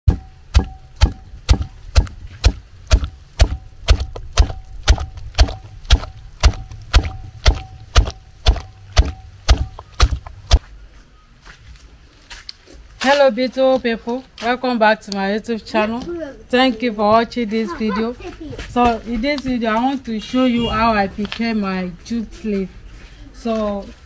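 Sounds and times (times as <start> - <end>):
chopping strokes with ring: 0.1 - 10.6.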